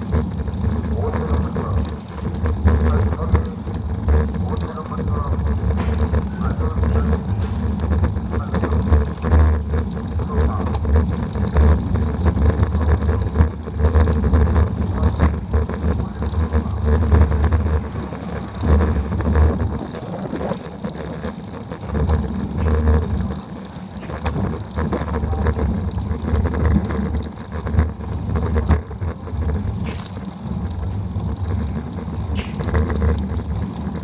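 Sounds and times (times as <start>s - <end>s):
small clicks and rattles: 0.0s - 34.0s
wind buffeting microphone: 7.6s - 34.0s.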